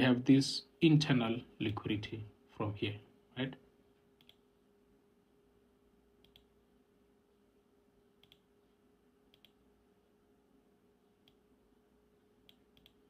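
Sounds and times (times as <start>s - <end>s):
faint steady hum: 0.0s - 13.0s
computer mouse clicks: 4.2s - 4.4s, 6.2s - 6.6s, 8.2s - 8.5s, 9.3s - 9.6s, 11.2s - 11.4s, 12.4s - 13.0s.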